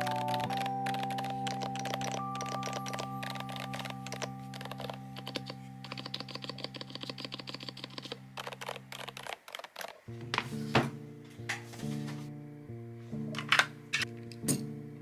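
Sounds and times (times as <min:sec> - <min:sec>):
rapid typing on a keyboard: 0:00.0 - 0:10.1.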